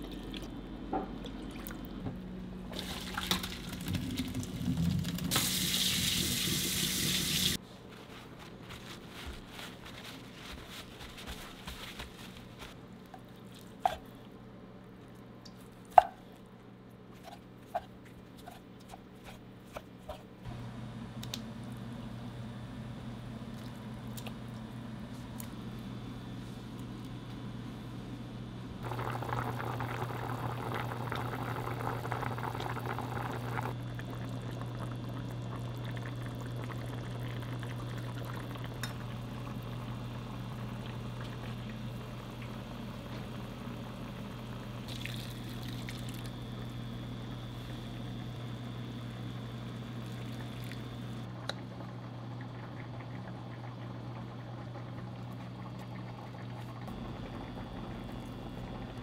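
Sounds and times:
food simmering and bubbling: 0:28.8 - 0:59.0.

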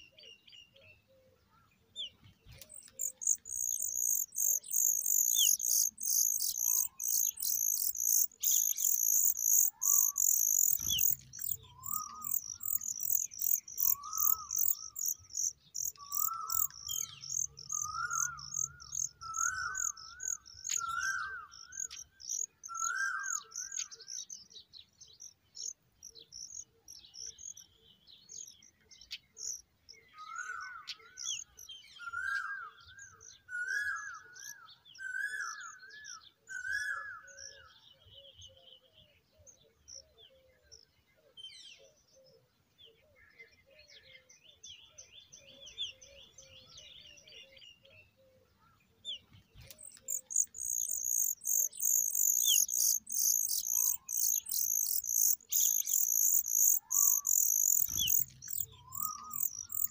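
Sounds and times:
nestlings chirping: 0:02.2 - 0:21.0, 0:49.2 - 0:59.9
rising and falling bird call: 0:02.7 - 0:22.0, 0:49.7 - 0:59.9.

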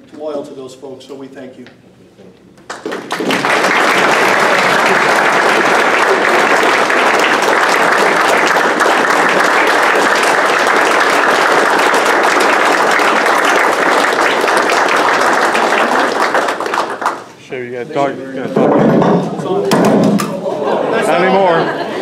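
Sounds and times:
crowd applauding: 0:02.7 - 0:17.3.

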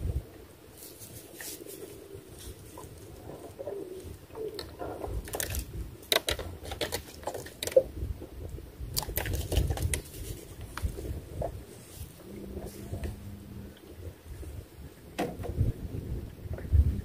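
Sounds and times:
wind rumble on microphone: 0:00.0 - 0:17.0
clicks and knocks of handling: 0:04.4 - 0:07.9.

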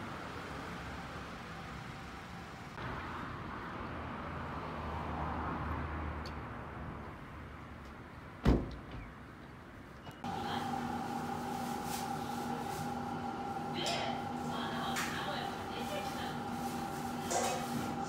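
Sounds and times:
road traffic hum: 0:00.0 - 0:18.0.

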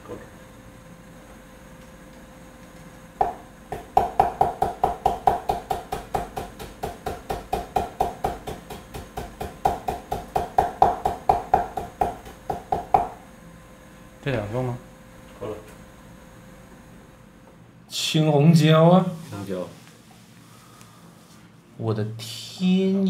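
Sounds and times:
cleaver chopping on wooden board: 0:03.2 - 0:13.2.

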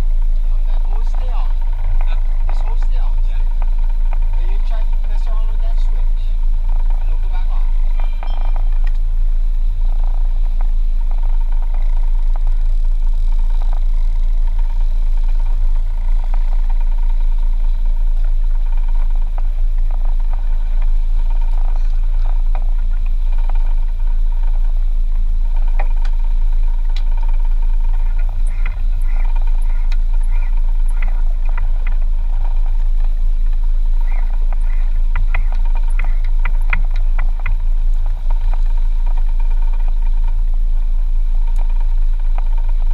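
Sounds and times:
boat engine droning: 0:00.0 - 0:42.9.

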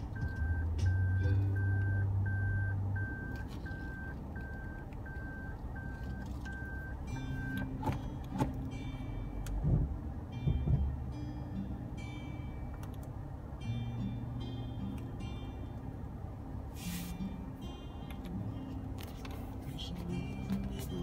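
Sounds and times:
reversing warning beep: 0:00.2 - 0:07.6.

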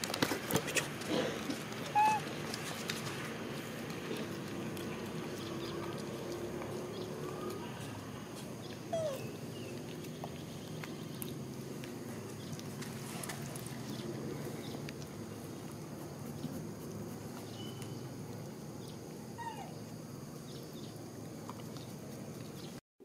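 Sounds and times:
low background hum: 0:00.0 - 0:22.8
monkey squeak: 0:01.9 - 0:02.2.

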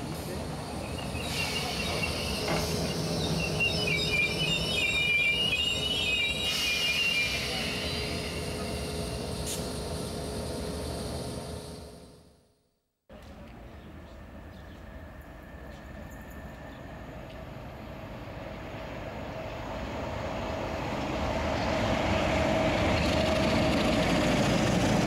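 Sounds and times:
train hum and rumble: 0:00.0 - 0:12.5, 0:13.1 - 0:25.0
wheels and brakes squealing: 0:00.7 - 0:09.7.

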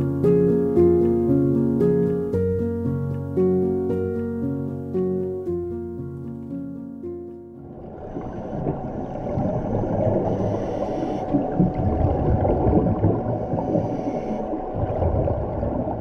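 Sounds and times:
faint steady tone: 0:07.6 - 0:15.8
underwater bubbling and gurgling: 0:07.6 - 0:16.0.

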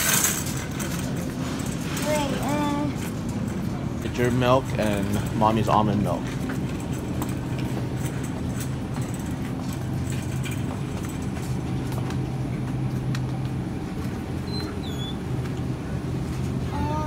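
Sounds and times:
shopping cart rattling: 0:00.0 - 0:11.8
steady low hum: 0:00.0 - 0:17.0.

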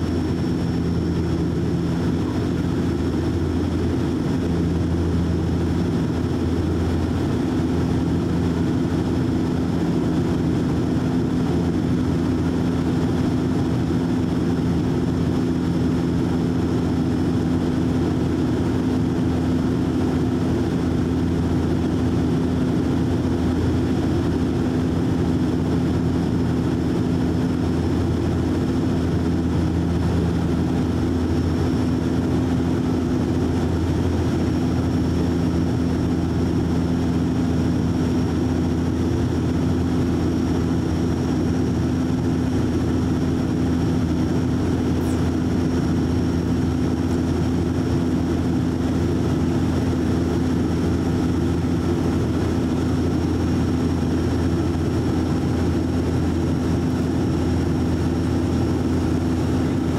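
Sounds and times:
turboprop cabin drone: 0:00.0 - 0:59.9
faint high whine: 0:44.7 - 0:47.3.

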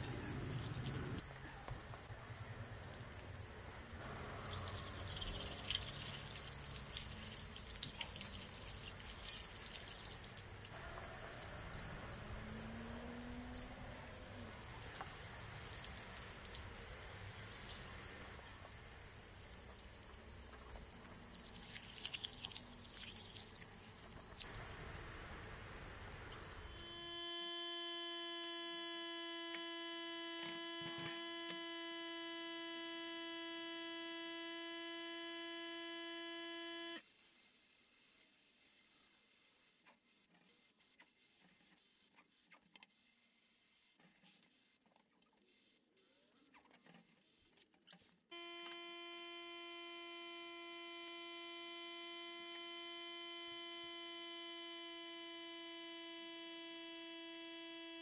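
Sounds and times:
electric hum: 0:00.0 - 0:01.4, 0:02.3 - 0:37.0, 0:48.3 - 0:58.0
water running and splashing: 0:00.0 - 0:27.0.

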